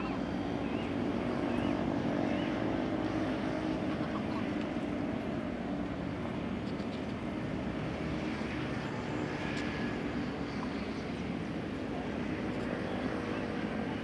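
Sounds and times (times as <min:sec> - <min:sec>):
distant motor engine drone: 0:00.0 - 0:14.0.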